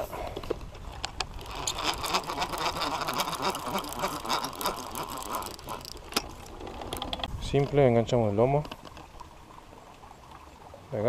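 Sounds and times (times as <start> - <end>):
fishing reel whirring: 0.8 - 7.3.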